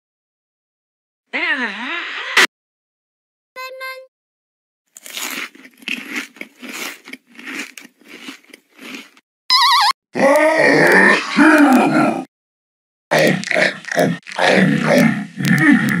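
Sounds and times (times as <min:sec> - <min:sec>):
crunchy chewing bites: 0:04.9 - 0:09.2, 0:13.1 - 0:16.0
short warbling tone: 0:09.5 - 0:10.0.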